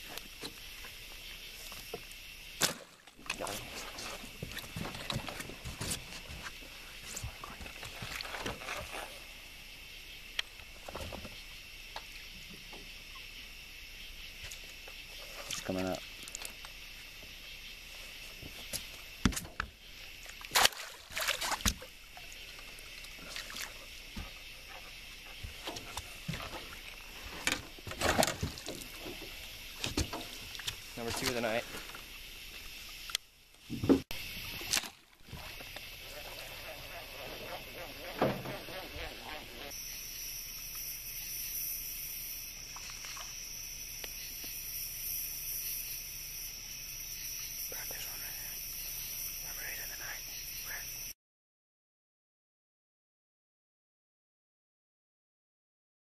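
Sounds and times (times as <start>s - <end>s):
night insects chorus: 0.0s - 51.2s
fish splashing water: 2.6s - 9.3s, 20.2s - 29.1s
faint ticks: 10.3s - 10.6s
faint hiss: 21.8s - 51.2s.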